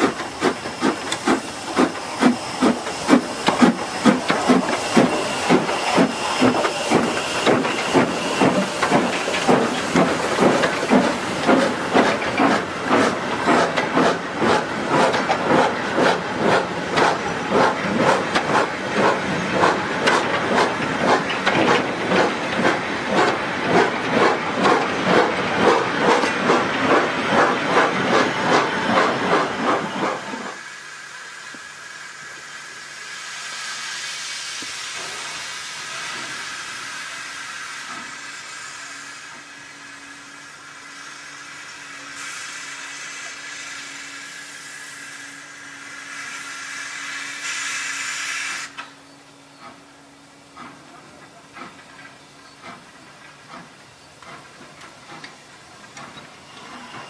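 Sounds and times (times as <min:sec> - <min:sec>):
steam hiss: 0:00.0 - 0:49.0, 0:52.6 - 0:57.0
steam locomotive exhaust chuffing: 0:00.0 - 0:57.0.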